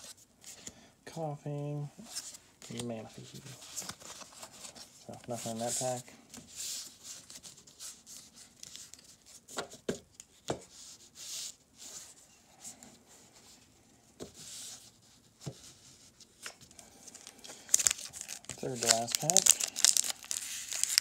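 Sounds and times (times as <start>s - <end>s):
cards rubbing and sliding: 15.7s - 21.0s.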